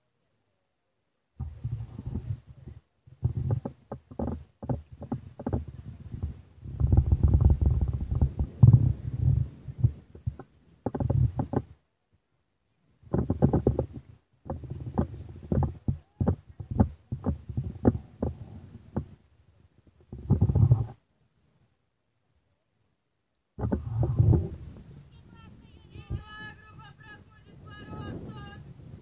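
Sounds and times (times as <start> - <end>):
microphone handling thumps: 1.4 - 11.8, 13.0 - 19.2, 20.0 - 21.0, 23.6 - 24.9
wind rumble on microphone: 1.4 - 11.8, 13.0 - 21.0, 23.6 - 29.0.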